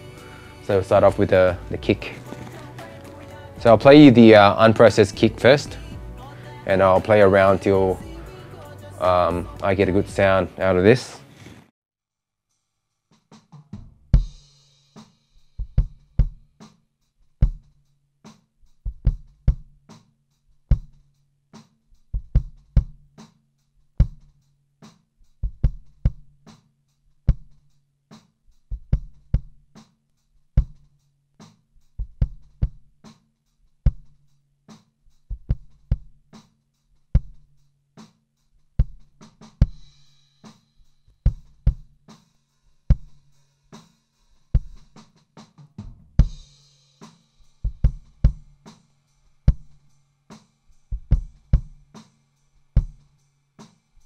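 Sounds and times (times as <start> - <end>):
kick drum hits: 15.6 - 16.4, 17.4 - 17.6, 27.3 - 27.5, 28.8 - 29.6, 30.6 - 30.8, 33.9 - 34.1, 35.3 - 36.2, 37.2 - 37.4, 41.3 - 42.0, 42.9 - 43.2, 44.6 - 44.9, 47.6 - 48.6, 49.5 - 49.8, 50.9 - 51.8, 52.8 - 53.0.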